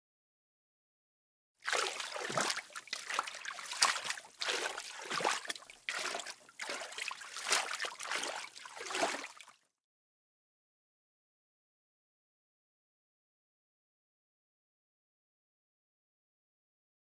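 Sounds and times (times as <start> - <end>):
water sloshing and splashing: 1.6 - 9.6.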